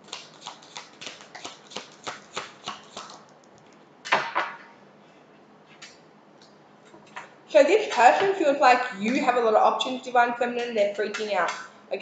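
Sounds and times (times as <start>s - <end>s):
cards being shuffled: 0.0s - 3.2s.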